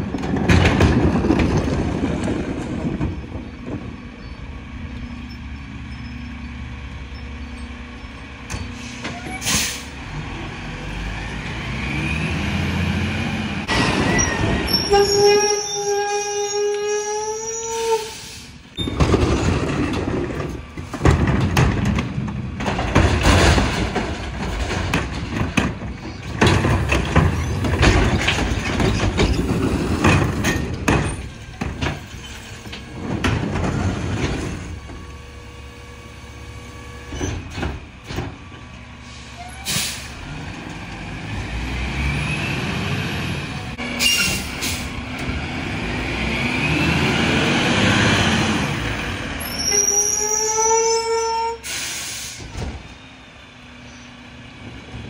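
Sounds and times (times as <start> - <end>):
recyclables clattering and banging: 0.0 - 4.4, 18.8 - 35.1, 37.1 - 38.8
truck engine revving: 5.8 - 15.6, 32.6 - 49.8
air brakes hissing: 8.7 - 10.0, 17.6 - 18.8, 39.0 - 40.2, 44.0 - 45.0, 51.5 - 52.6.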